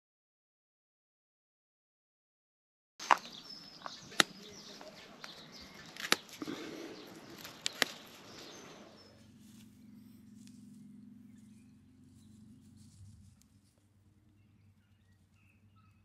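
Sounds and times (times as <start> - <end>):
flower stems snapping: 3.0 - 8.4
leaves rustling: 3.0 - 15.4
birds chirping: 3.0 - 16.0.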